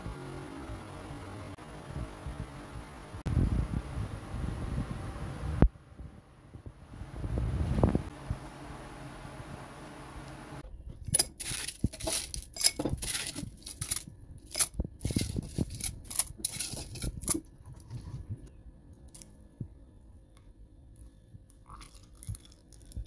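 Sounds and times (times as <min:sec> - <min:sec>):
ice clinking against glass: 0:11.1 - 0:17.3.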